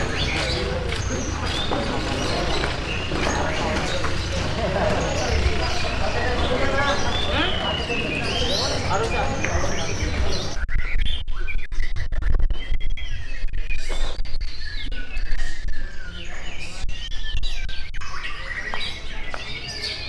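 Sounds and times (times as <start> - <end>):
songbirds singing: 0.0 - 10.6, 14.4 - 20.0
steady low background rumble: 0.0 - 10.6.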